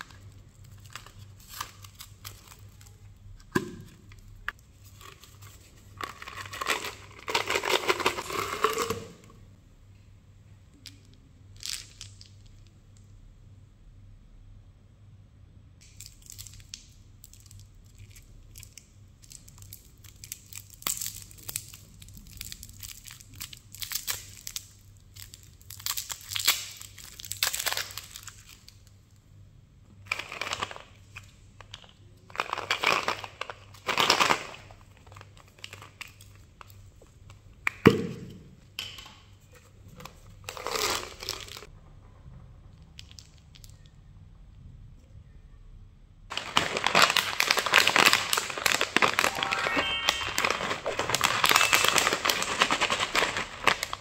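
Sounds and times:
candy wrappers crinkling: 0:00.0 - 0:09.3, 0:10.8 - 0:12.7, 0:15.8 - 0:29.2, 0:30.0 - 0:37.6, 0:39.9 - 0:41.7, 0:43.0 - 0:43.9, 0:46.3 - 0:54.0.

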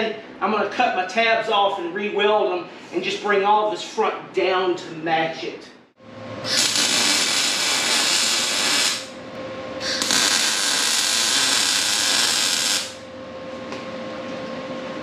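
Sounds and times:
welder arc crackling: 0:06.4 - 0:09.2, 0:09.8 - 0:13.1.

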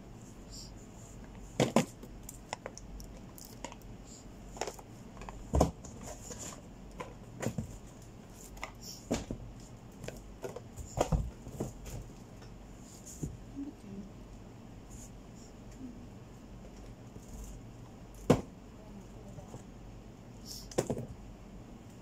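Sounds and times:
boxed items clicking and tapping: 0:01.6 - 0:03.9, 0:04.5 - 0:09.4, 0:10.0 - 0:12.5
thumps in cardboard carton: 0:05.5 - 0:06.5, 0:09.1 - 0:09.5, 0:10.4 - 0:12.0, 0:18.2 - 0:18.5.

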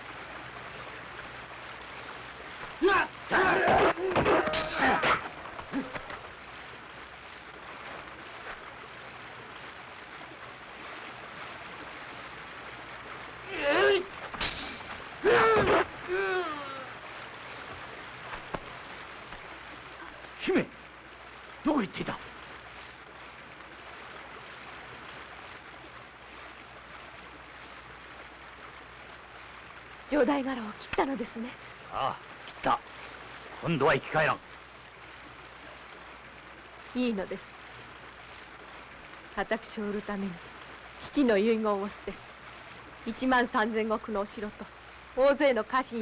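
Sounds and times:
faint steady hiss: 0:00.0 - 0:46.0
person crying out: 0:13.5 - 0:14.1, 0:15.2 - 0:16.9.

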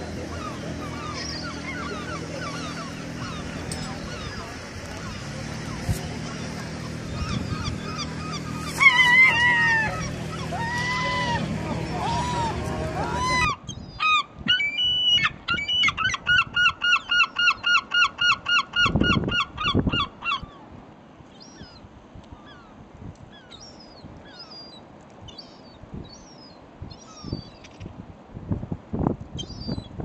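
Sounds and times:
gull calling: 0:00.0 - 0:20.6.

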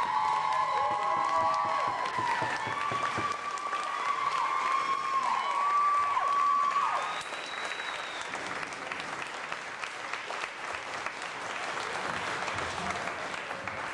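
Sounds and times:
crowd whooping: 0:00.0 - 0:08.5
audience applauding: 0:00.0 - 0:13.9.

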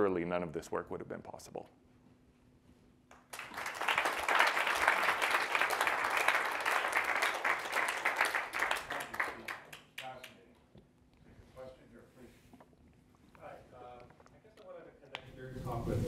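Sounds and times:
audience applauding: 0:03.1 - 0:10.3.

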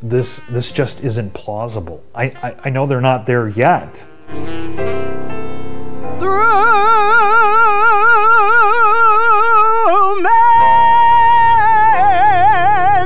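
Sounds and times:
solo voice singing with vibrato: 0:06.2 - 0:13.0.

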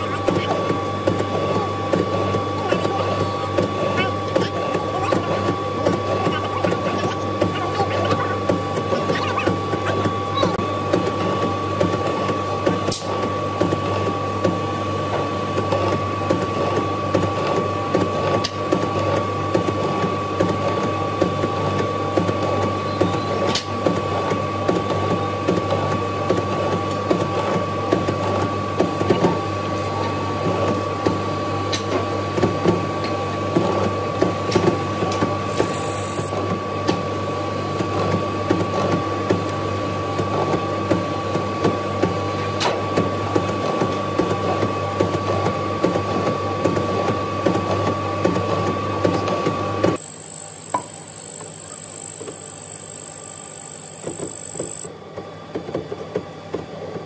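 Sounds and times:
mortising machine motor whine: 0:34.7 - 0:36.3, 0:50.0 - 0:54.9.

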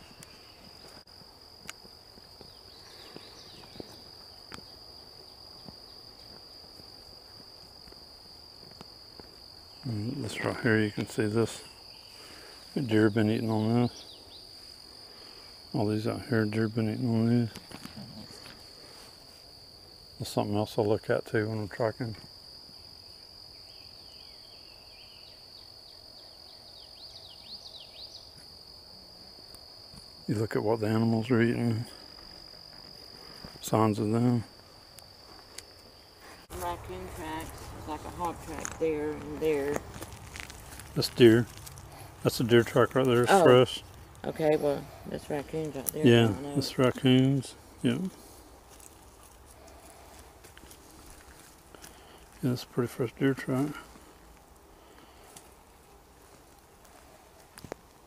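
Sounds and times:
songbird chirping: 0:00.0 - 0:07.4, 0:08.8 - 0:19.1, 0:23.1 - 0:28.9
insect chorus drone: 0:00.0 - 0:58.0.

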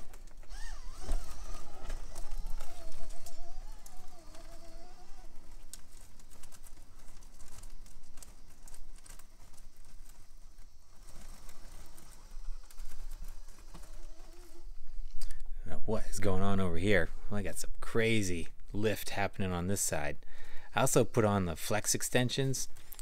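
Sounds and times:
toy motor whine: 0:00.0 - 0:15.1.

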